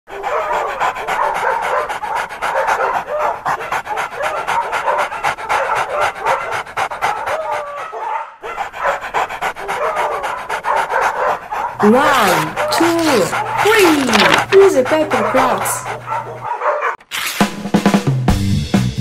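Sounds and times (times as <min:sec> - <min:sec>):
dog panting: 0:00.1 - 0:17.0
dog whining and yipping: 0:09.7 - 0:17.0.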